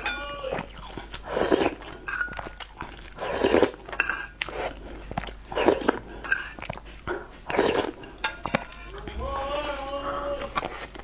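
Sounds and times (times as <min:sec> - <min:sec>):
person chewing food: 0:00.0 - 0:11.0.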